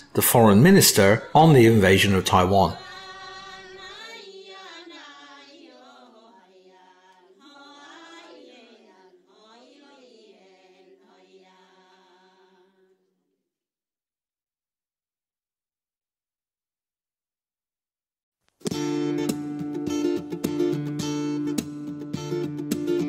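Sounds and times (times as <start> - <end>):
wordless chant-like singing: 0.1 - 13.0.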